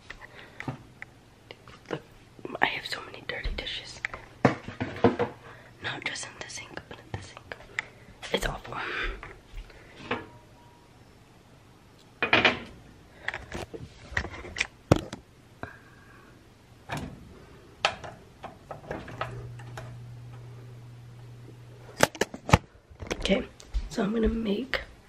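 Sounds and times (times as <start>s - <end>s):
low steady hum: 0.0s - 25.0s
clicks and knocks of kitchen items: 4.1s - 5.4s, 12.2s - 15.2s, 17.8s - 20.0s.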